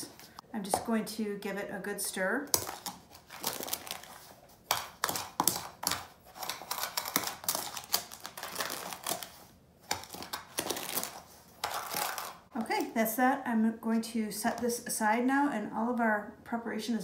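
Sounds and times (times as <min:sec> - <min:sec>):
spoon scraping plastic container: 0:02.5 - 0:12.9.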